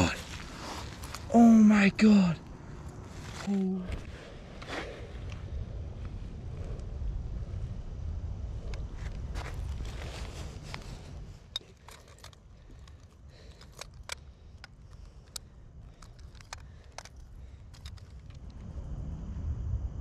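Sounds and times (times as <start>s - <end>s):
low rumble of handling noise: 0.0s - 20.0s
metal pliers clicking on hooks: 11.6s - 18.5s.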